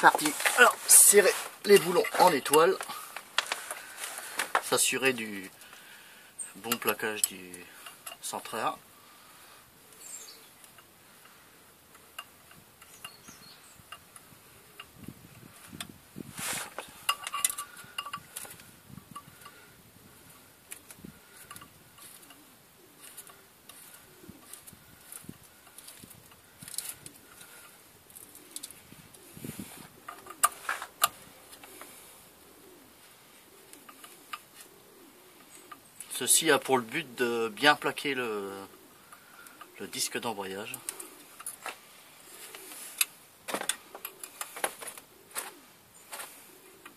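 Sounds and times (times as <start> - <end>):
rustle: 0.0 - 46.9
metallic ticks and clinks of bolts: 6.7 - 8.3, 17.1 - 18.5
bird cooing: 9.8 - 15.6, 16.9 - 46.9
metal clinks of bolts and tool: 17.1 - 18.3.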